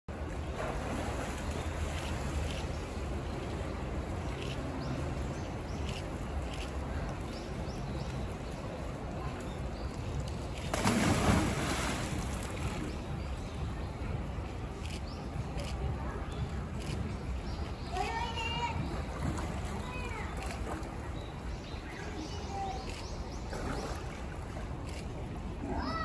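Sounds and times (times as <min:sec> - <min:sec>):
steady background noise: 0:00.1 - 0:26.0
animal splashing into water: 0:10.6 - 0:13.0.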